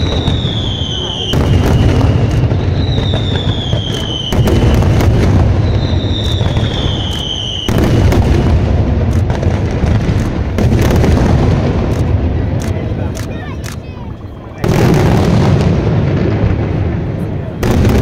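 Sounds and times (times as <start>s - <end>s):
falling firework whistle: 0.0s - 8.6s
fireworks bursts and booms: 0.0s - 18.0s.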